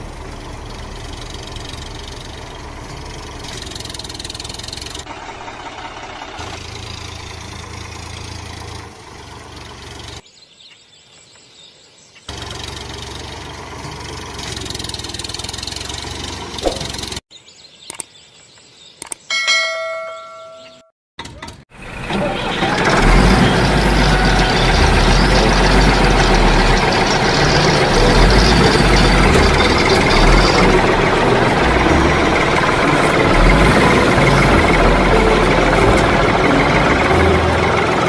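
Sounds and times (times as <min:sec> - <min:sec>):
engine idling and running: 0:00.0 - 0:10.2, 0:12.3 - 0:17.2, 0:21.2 - 0:38.0
ringing tone: 0:19.3 - 0:20.9.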